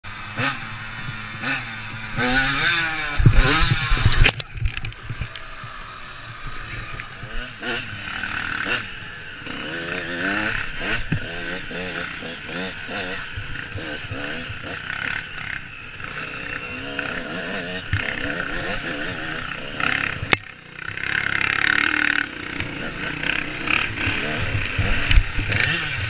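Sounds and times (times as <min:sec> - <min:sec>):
dirt bike engine revving: 0:00.1 - 0:26.0.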